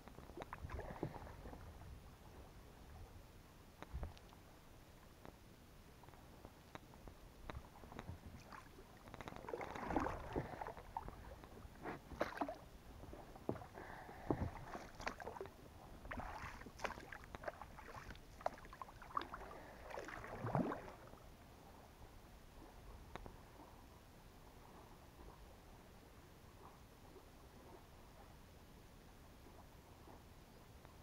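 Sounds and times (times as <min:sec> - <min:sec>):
pole splashing in water: 0:08.0 - 0:12.6, 0:14.3 - 0:15.5, 0:16.1 - 0:21.1
small sharp clicks and knocks: 0:09.0 - 0:09.4.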